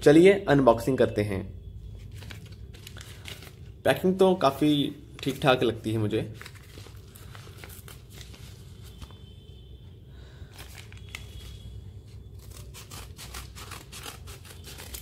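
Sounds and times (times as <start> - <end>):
paper envelope crinkling: 2.0 - 3.8, 5.0 - 9.3, 10.5 - 15.0
scissors snipping paper: 12.4 - 15.0.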